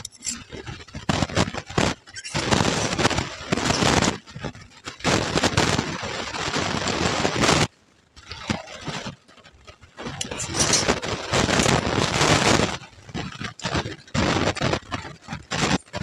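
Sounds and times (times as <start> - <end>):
spoon scraping steel plate: 0.0 - 0.6, 2.1 - 4.0, 10.1 - 12.0.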